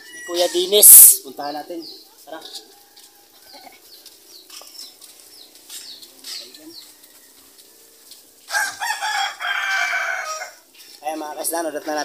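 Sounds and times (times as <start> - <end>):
rooster crowing: 0.0 - 0.9, 2.6 - 3.8, 6.7 - 10.6
small birds chirping: 0.0 - 12.0.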